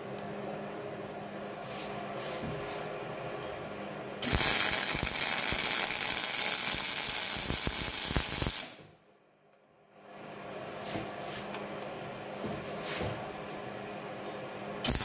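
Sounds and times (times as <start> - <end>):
welding arc crackling: 4.2 - 8.8.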